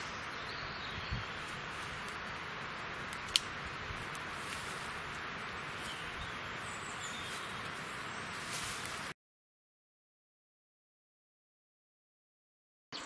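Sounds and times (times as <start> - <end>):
background hiss: 0.0 - 9.1
small birds calling: 0.0 - 9.1.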